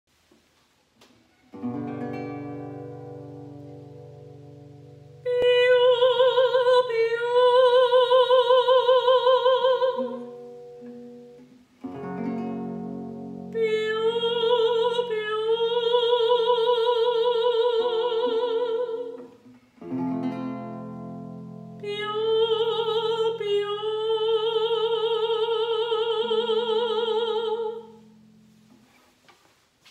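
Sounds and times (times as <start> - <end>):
acoustic guitar chords: 1.3 - 8.6, 9.2 - 15.8, 19.8 - 23.5
woman singing vocal warm-up: 5.2 - 10.3, 13.5 - 19.3, 21.8 - 28.0.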